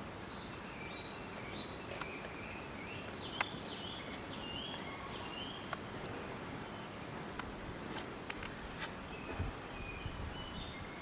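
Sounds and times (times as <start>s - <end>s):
outdoor background noise: 0.0s - 11.0s
songbird singing: 0.0s - 11.0s.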